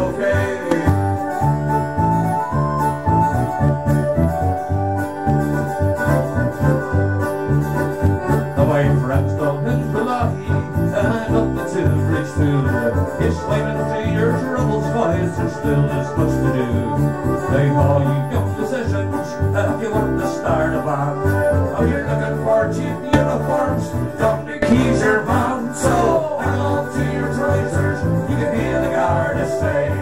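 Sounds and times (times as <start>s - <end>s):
plucked strings: 0.0s - 11.2s, 22.5s - 26.3s
steady bass line: 0.0s - 30.0s.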